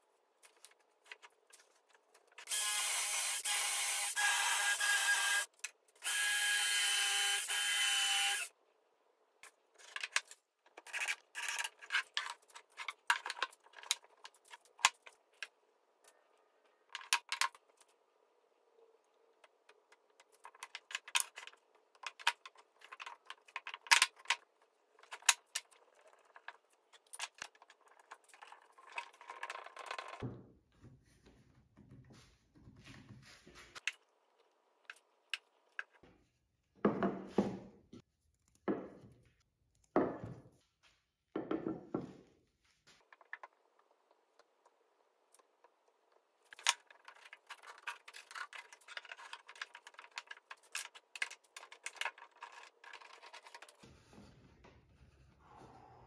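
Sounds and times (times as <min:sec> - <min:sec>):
cordless drill boring into wood: 0:02.5 - 0:08.5
wooden parts knocking on workbench: 0:36.8 - 0:37.7, 0:40.0 - 0:40.4, 0:41.4 - 0:42.2.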